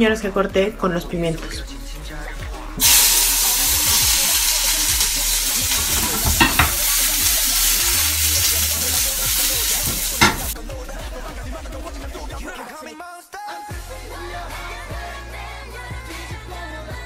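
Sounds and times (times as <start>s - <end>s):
vegetables sizzling in frying pan: 2.8s - 10.6s
pan knocking on hob grate: 5.7s - 7.1s, 9.4s - 10.6s.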